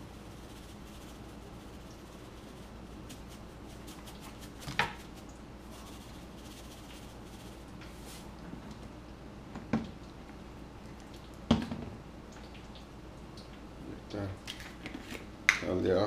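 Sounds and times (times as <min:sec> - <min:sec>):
seasoning shaker rattling: 0:00.0 - 0:08.4
steady low hum: 0:00.0 - 0:14.5.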